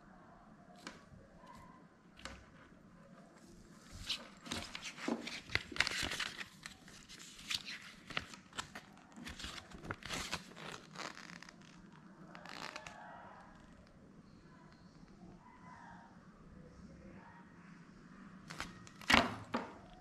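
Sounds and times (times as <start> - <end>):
packaging rustling and crinkling: 4.0 - 11.8.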